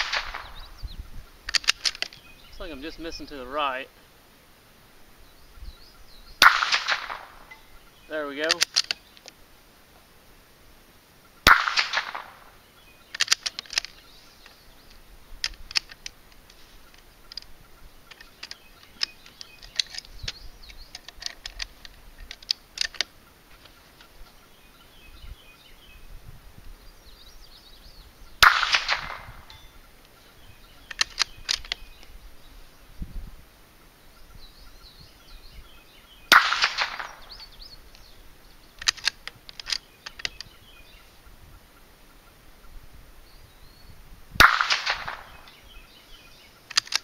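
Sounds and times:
rifle shots with echo: 0.0s - 0.7s, 6.4s - 7.5s, 11.4s - 12.6s, 28.4s - 29.7s, 36.3s - 37.4s, 44.4s - 45.6s
rifle bolt clicking: 1.5s - 2.2s, 8.4s - 9.4s, 13.1s - 14.0s, 15.4s - 17.5s, 18.1s - 23.1s, 30.8s - 31.8s, 38.8s - 40.5s, 46.7s - 47.0s.

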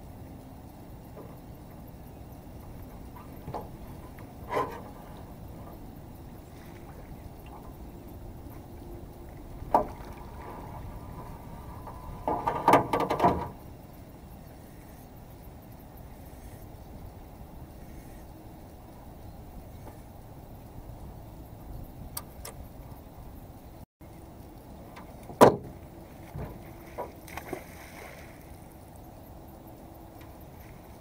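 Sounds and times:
knocks against aluminum boat hull: 25.2s - 27.1s.

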